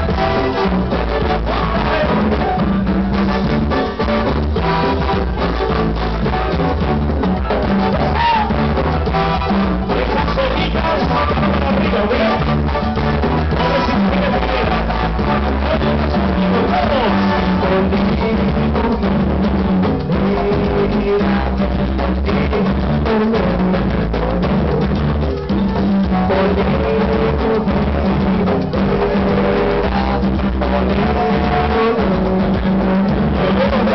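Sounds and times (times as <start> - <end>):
drum kit beat: 0.0 - 33.9
live band music: 0.0 - 33.9.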